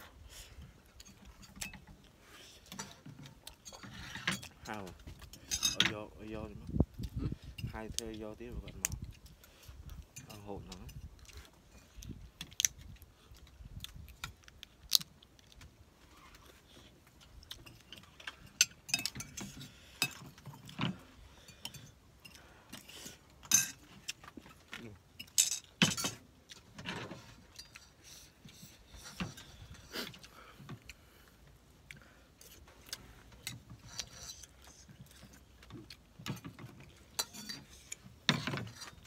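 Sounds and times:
chewing: 8.6 - 25.8, 26.4 - 38.1.

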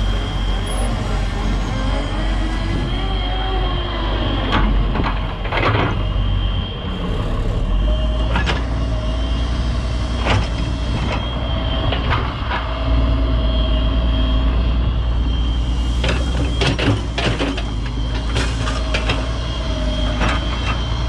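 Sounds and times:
excavator diesel engine running: 0.0 - 21.0
hydraulic whine: 0.0 - 21.0.

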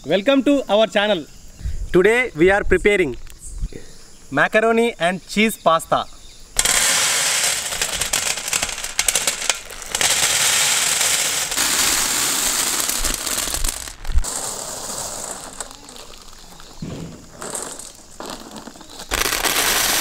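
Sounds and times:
knock: 16.8 - 17.2.

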